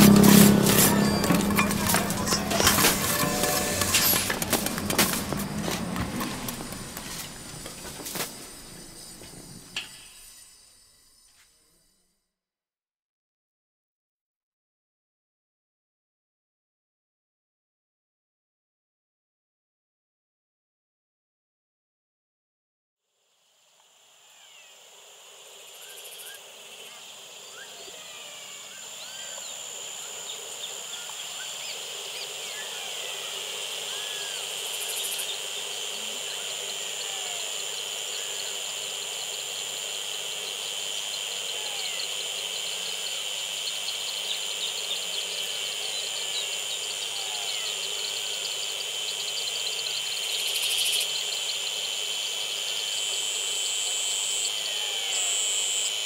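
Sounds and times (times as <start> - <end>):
birds chirping and whistling: 0.0 - 6.0
insects droning: 0.0 - 12.4, 23.2 - 56.0.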